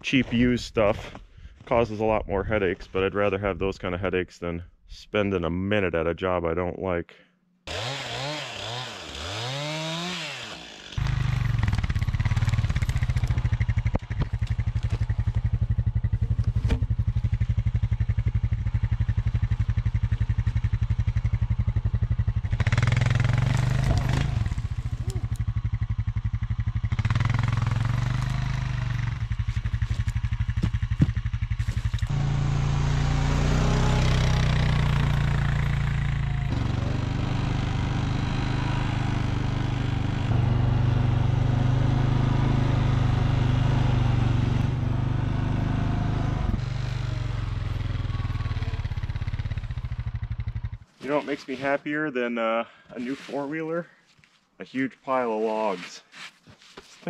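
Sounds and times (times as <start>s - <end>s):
chainsaw revving: 7.7s - 16.6s, 22.4s - 26.0s, 26.8s - 50.0s
atv engine running: 11.0s - 50.9s.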